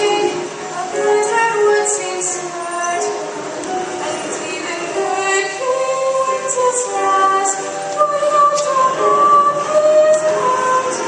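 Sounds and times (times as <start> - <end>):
choir singing long held notes: 0.0 - 11.0.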